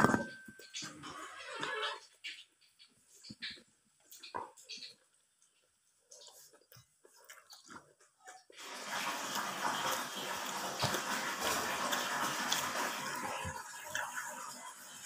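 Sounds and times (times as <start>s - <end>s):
faint eating clicks: 3.3s - 8.6s
tap water running: 8.6s - 15.0s.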